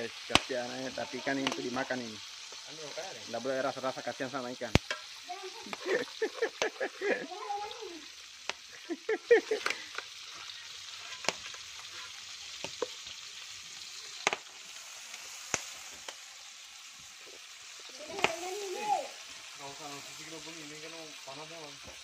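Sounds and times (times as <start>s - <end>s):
fish sizzling in hot oil: 0.0s - 22.0s
sharp pops in frying oil: 0.2s - 0.7s, 1.3s - 3.0s, 4.6s - 6.9s, 8.3s - 8.8s, 9.5s - 10.2s, 11.0s - 18.9s.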